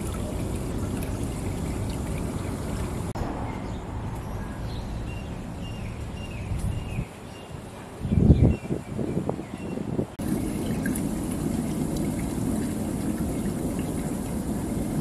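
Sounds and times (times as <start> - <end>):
water running and trickling: 0.0 - 3.2, 10.2 - 15.0.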